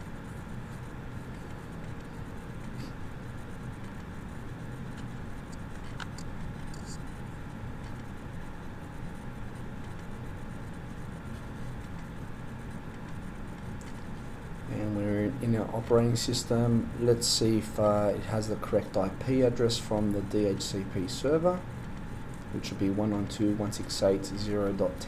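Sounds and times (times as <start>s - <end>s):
low hum and hiss: 0.0s - 25.0s.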